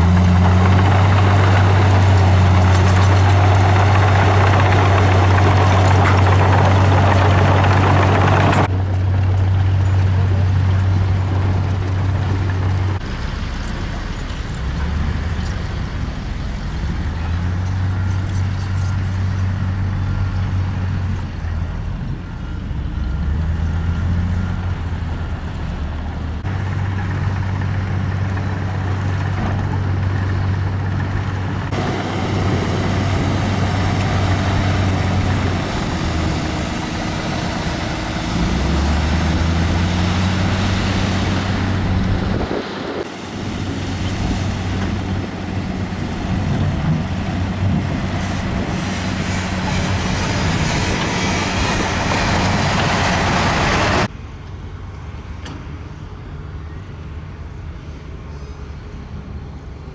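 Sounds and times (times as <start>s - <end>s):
heavy diesel machinery engine drone: 0.0s - 59.9s.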